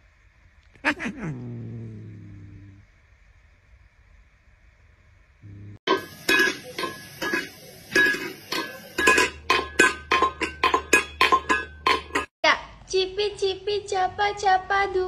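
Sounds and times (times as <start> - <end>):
metal pet bowl clanking: 5.9 - 12.3.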